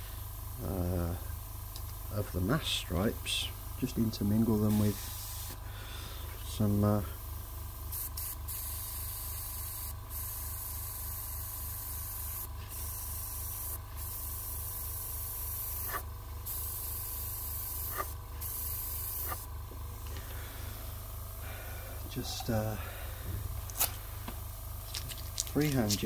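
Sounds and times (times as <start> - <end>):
low steady hum: 0.0 - 26.0
airbrush spraying air hiss: 4.5 - 5.7, 7.9 - 24.0.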